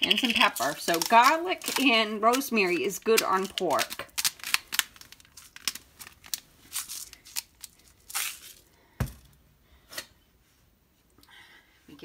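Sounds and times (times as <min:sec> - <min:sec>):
spice grinder crunching: 0:00.0 - 0:08.6.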